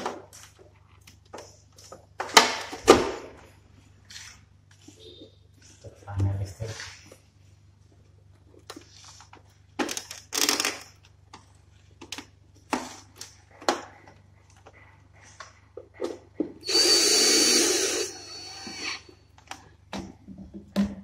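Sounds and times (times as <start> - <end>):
power drill running: 16.6 - 19.1.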